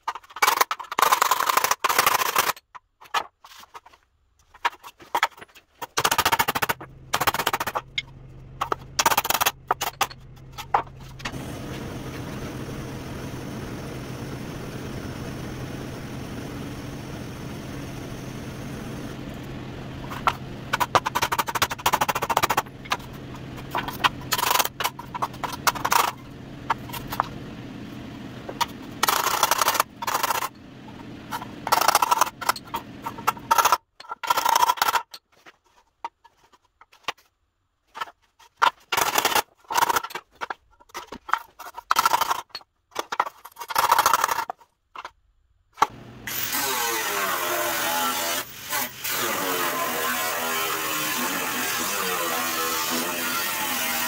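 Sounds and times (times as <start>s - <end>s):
steady low hum: 6.5s - 33.6s
angle grinder: 46.2s - 54.0s.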